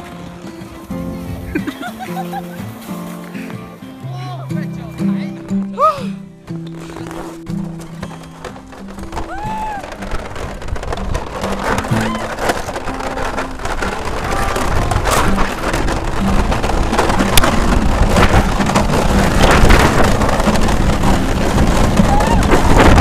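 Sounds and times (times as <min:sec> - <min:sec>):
sled scraping down ice: 0:00.0 - 0:03.8, 0:06.5 - 0:23.0
soft instrumental music: 0:00.0 - 0:09.8
wind on microphone: 0:08.6 - 0:23.0.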